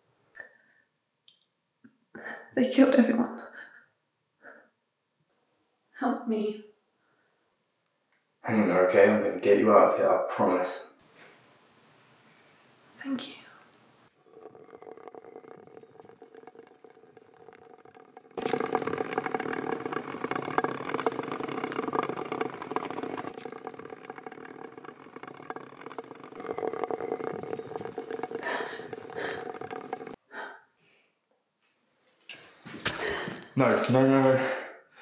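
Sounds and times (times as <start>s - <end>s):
loud rattling mechanical noise: 14.2s - 30.2s.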